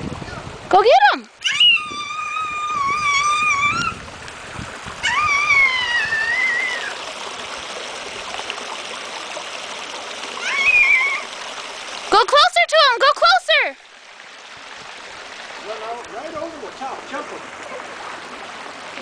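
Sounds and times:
toddler squealing: 1.4 - 4.0, 5.0 - 7.0, 10.4 - 11.3.

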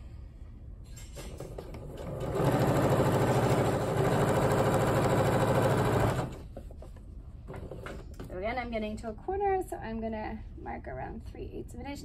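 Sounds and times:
sewing machine stitching: 1.4 - 6.6.

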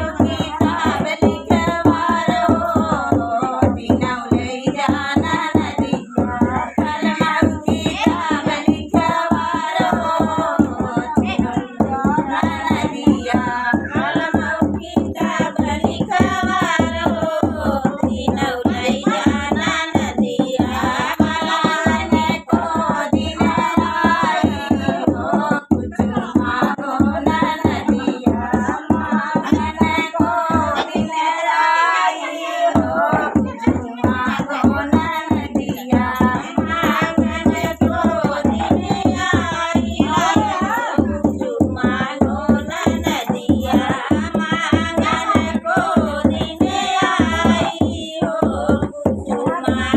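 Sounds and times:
hand drum beating: 0.0 - 31.2, 32.8 - 49.9
woman singing folk song: 0.0 - 49.9.

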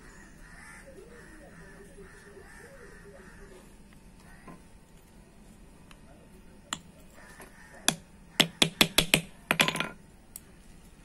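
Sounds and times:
small hammer tapping metal: 7.9 - 10.0.

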